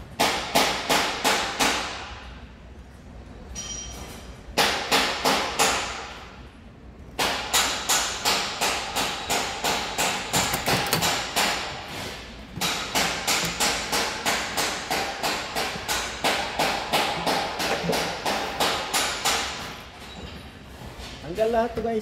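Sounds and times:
hammering: 0.2 - 2.1, 4.6 - 6.2, 7.2 - 19.9.

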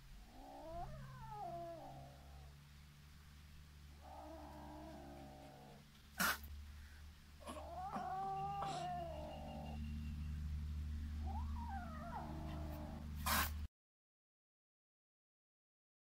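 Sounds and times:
kitten meowing: 7.4 - 9.8, 11.2 - 13.0.

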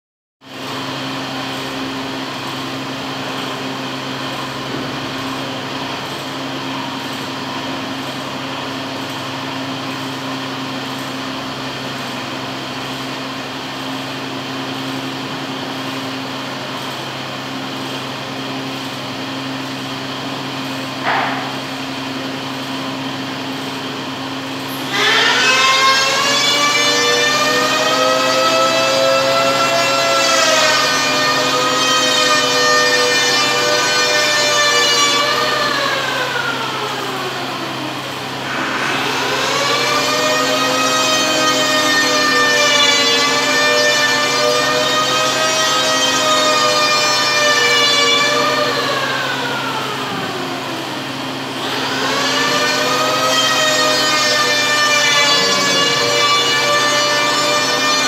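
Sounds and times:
machine hum: 0.6 - 58.0
siren-like wail: 24.8 - 58.0
short rising squeak: 38.4 - 43.0, 52.4 - 58.0.

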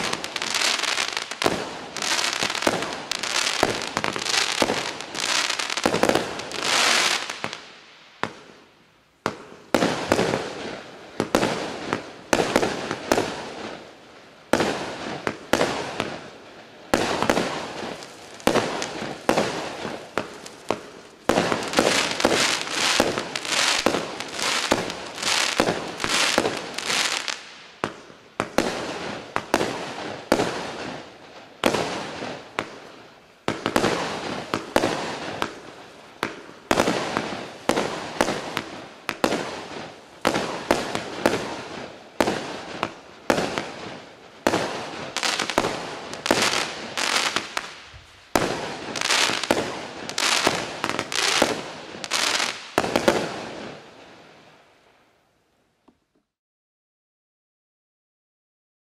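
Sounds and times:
fireworks crackling: 0.0 - 54.6
fireworks cake firing shots: 33.5 - 35.6, 36.2 - 47.8, 48.4 - 53.5.

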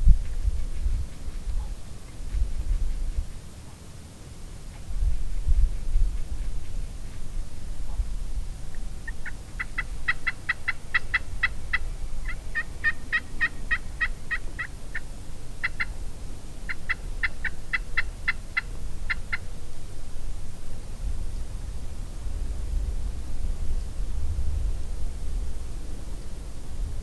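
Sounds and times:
wild turkey calling: 8.6 - 16.0, 16.6 - 19.6.

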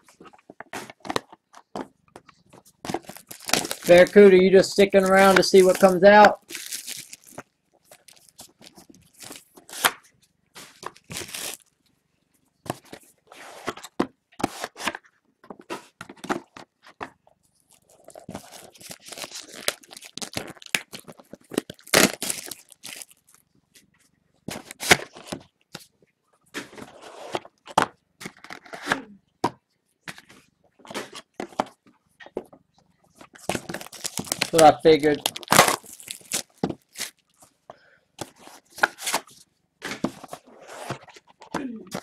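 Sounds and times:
plastic wrap crinkling and tearing: 2.9 - 10.0, 10.7 - 11.7, 17.6 - 23.4, 33.4 - 37.5.

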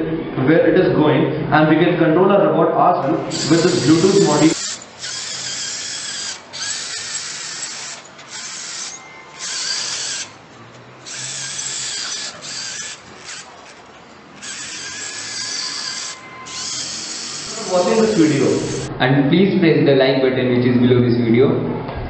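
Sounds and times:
small gear motors whirring: 3.2 - 18.9.

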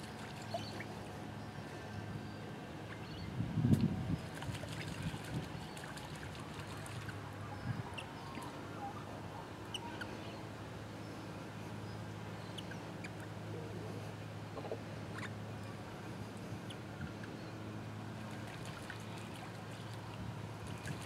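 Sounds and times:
birds splashing in birdbath: 0.0 - 1.0, 4.2 - 7.2, 18.2 - 21.0
steady low hum: 0.0 - 21.0.

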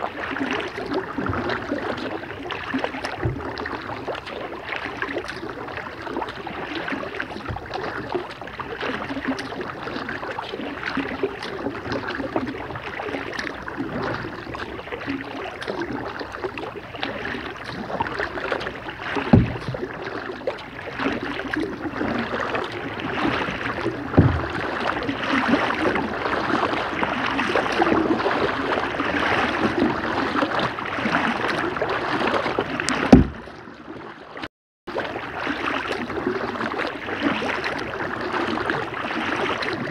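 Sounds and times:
dripping water: 0.0 - 33.9
paddle splashing in water: 0.0 - 39.9
sharp thumps: 19.3 - 19.8, 24.1 - 24.6, 33.0 - 33.5.

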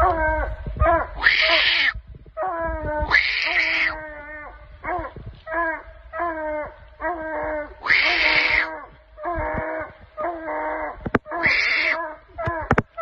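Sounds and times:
hound bawling: 0.0 - 1.9, 7.0 - 13.0.

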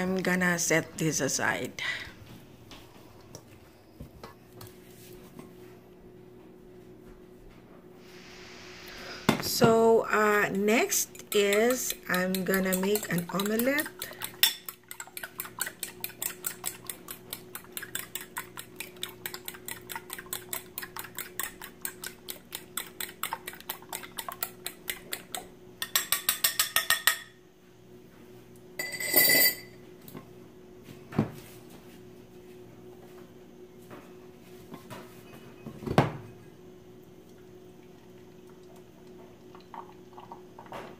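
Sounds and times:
short ringing clink: 28.8 - 29.7.

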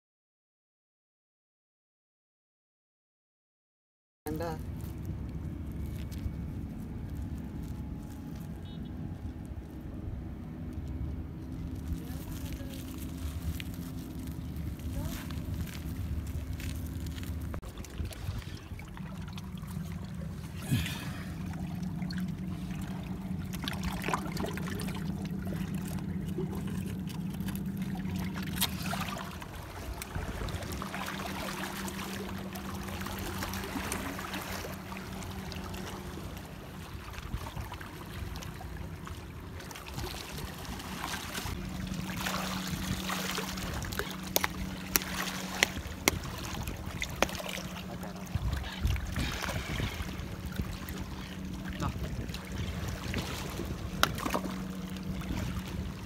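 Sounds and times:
low steady hum: 4.3 - 56.0
water trickling among rocks: 10.6 - 41.6, 42.2 - 51.5.

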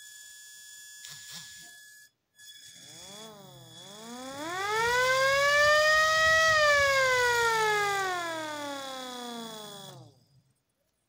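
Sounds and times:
electric motor siren wailing: 2.6 - 10.3.

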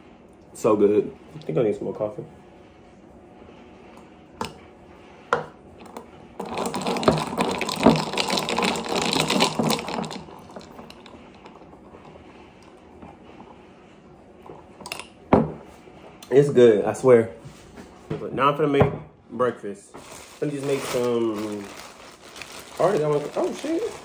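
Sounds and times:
ice cubes clinking in glass: 6.4 - 11.0.

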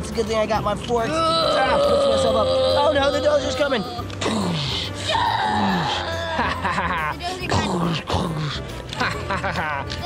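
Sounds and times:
background music: 0.0 - 10.0
man groaning: 1.1 - 4.8.

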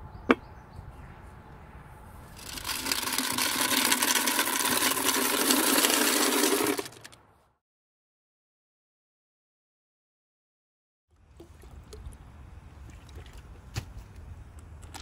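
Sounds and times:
candies rattling into glass tank: 2.4 - 7.2.

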